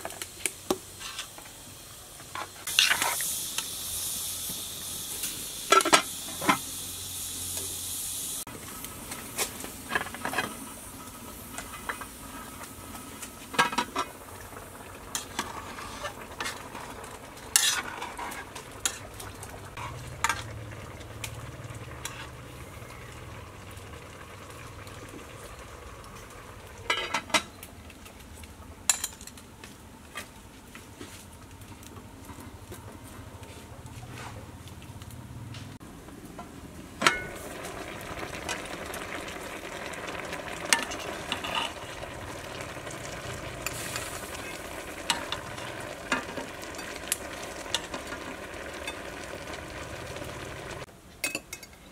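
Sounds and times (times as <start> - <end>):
faint sizzle: 0.0 - 51.9
loud high hiss: 2.6 - 9.6
metal pots and lids clinking: 26.9 - 27.5, 37.0 - 37.4, 51.2 - 51.9.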